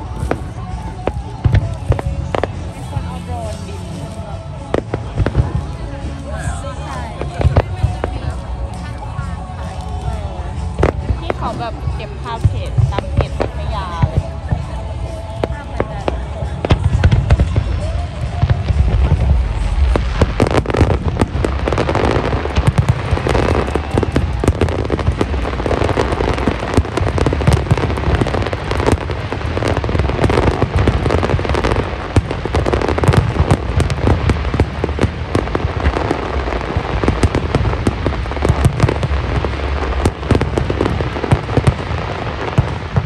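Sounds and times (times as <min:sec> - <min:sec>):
firework crackling: 0:00.0 - 0:43.0
booming firework bursts: 0:12.4 - 0:43.0.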